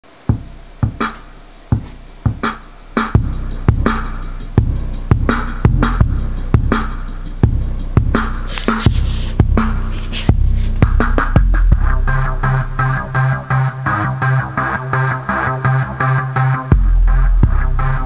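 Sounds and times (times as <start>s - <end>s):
deep sustained bass: 1.4s - 18.0s
electronic dance music: 1.8s - 13.4s.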